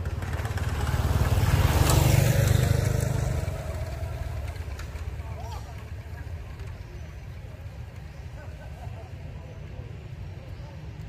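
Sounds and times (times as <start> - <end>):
vehicle engine passing by: 0.0 - 8.0.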